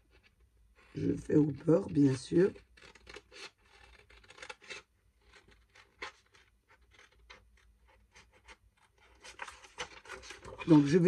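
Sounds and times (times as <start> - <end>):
scissors snipping paper: 1.7 - 7.4.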